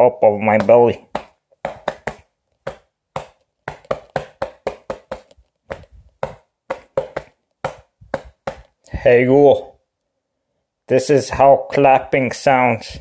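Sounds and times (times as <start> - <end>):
hand slapping a belly: 0.6 - 8.8.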